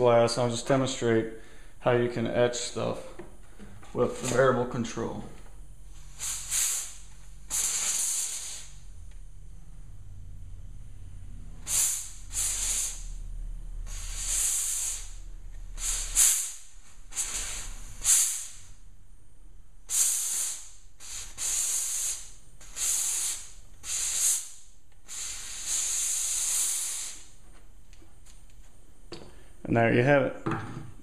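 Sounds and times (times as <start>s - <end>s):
sandblaster hissing bursts: 6.0s - 9.0s, 11.6s - 13.2s, 13.8s - 18.8s, 19.8s - 27.4s.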